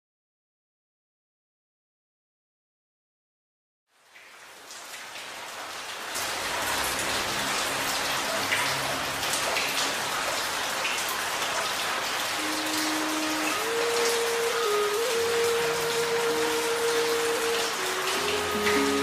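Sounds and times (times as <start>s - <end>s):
rain falling: 3.9s - 19.0s.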